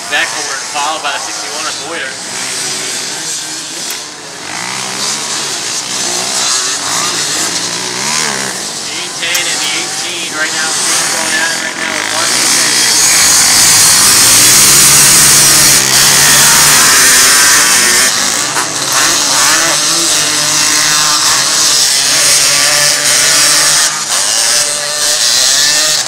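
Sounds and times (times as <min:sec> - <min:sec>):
three-wheeler engines revving: 0:00.0 - 0:26.0.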